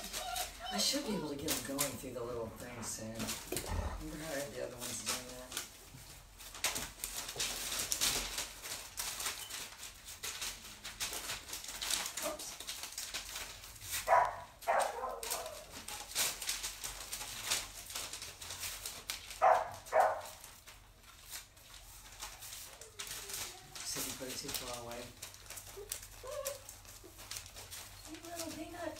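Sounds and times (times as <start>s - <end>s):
faint clicking and rustling: 0.0s - 28.9s
dog barking: 14.1s - 15.6s, 19.4s - 20.4s.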